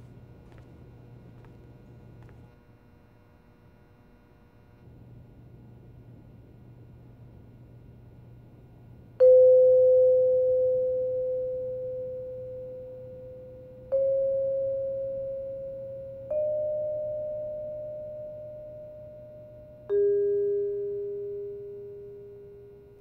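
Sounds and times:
bell-like struck notes: 0:09.2 - 0:23.0.

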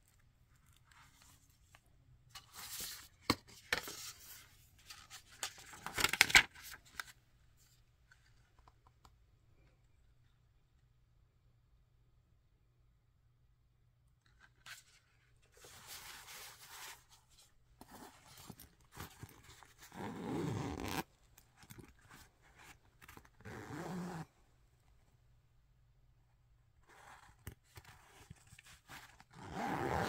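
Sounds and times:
zipper being pulled: 0:17.8 - 0:22.0, 0:23.0 - 0:24.3, 0:26.8 - 0:27.4, 0:29.3 - 0:30.0.

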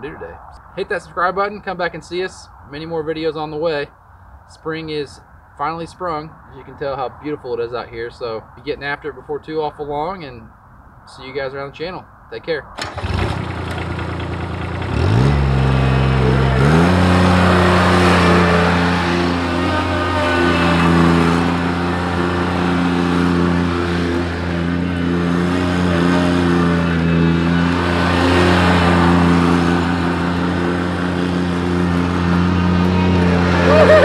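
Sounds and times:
mower diesel engine revving: 0:12.8 - 0:34.0.

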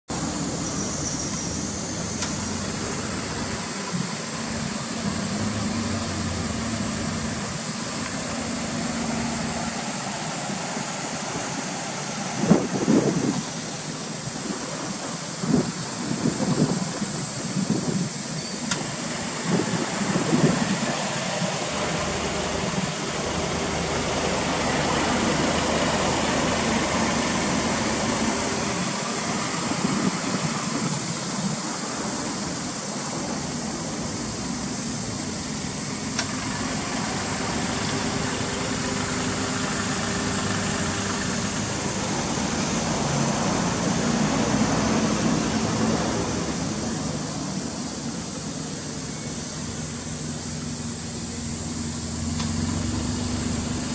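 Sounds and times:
wind buffeting microphone: 0:10.5 - 0:47.6.

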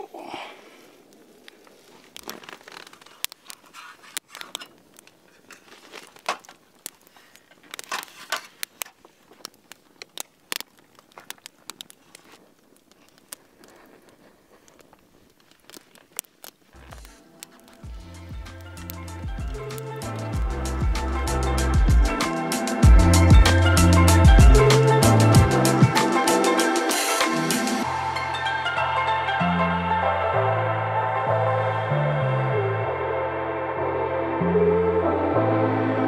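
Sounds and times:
campfire crackling and popping: 0:00.1 - 0:28.8
music: 0:16.8 - 0:36.0.

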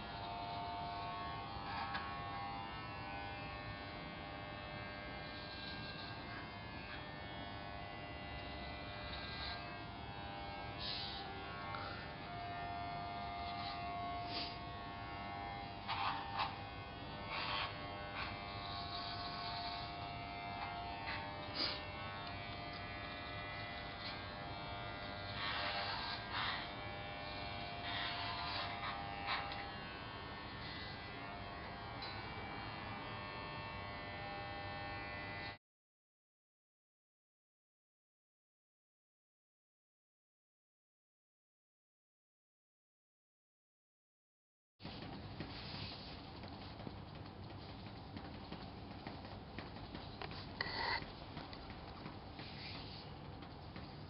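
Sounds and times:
electric hair clippers buzzing: 0:00.0 - 0:35.6, 0:50.2 - 0:53.2.

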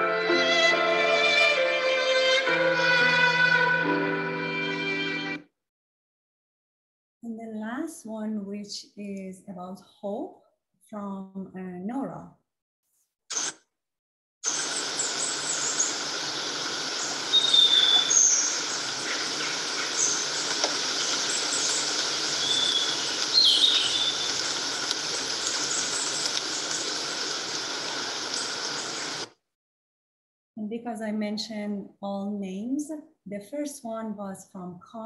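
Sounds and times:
high bird chirps: 0:14.5 - 0:24.6.

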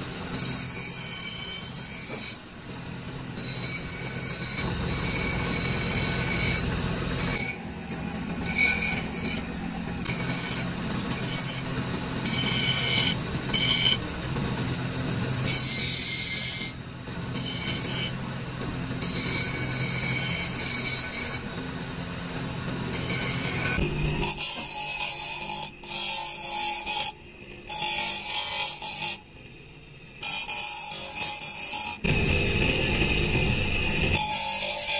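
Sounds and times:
grinding wheel humming: 0:00.0 - 0:25.5, 0:26.8 - 0:34.9
metal scraping and squealing: 0:03.3 - 0:14.2.

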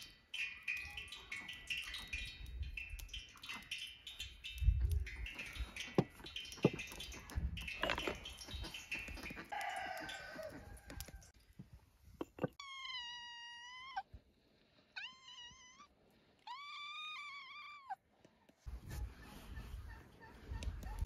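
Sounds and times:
cooking clattering and rustling: 0:04.8 - 0:09.6
cat meowing: 0:12.6 - 0:14.1, 0:14.9 - 0:18.0.

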